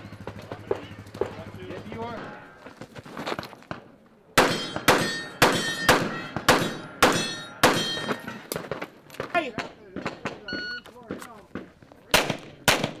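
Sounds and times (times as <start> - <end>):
metallic clang ringing: 4.4 - 8.6
pistol shots: 4.4 - 8.9, 9.6 - 13.0.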